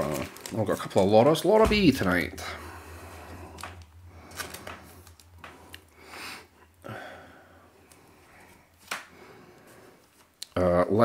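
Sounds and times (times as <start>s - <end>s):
low steady hum: 0.0s - 10.1s.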